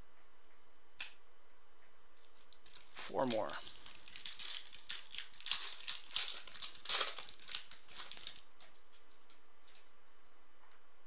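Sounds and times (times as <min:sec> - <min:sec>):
wrapper tearing and crinkling: 0:02.2 - 0:09.8.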